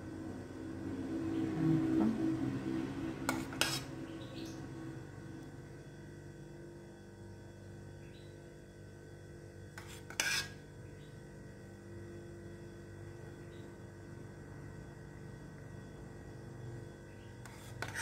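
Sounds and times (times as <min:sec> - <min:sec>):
faint steady hum: 0:00.0 - 0:18.0
spoon scraping saucepan: 0:03.3 - 0:04.0, 0:09.8 - 0:10.6, 0:17.4 - 0:18.0.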